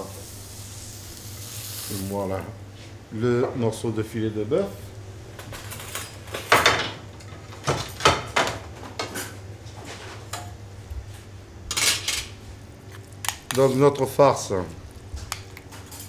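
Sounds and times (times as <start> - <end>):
steady low hum: 0.0 - 16.0
metal utensils clinking and scraping: 11.7 - 12.3.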